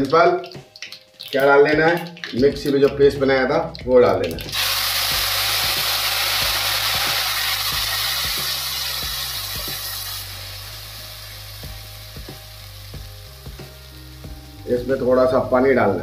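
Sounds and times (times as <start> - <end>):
paste sizzling in hot oil: 4.4 - 16.0.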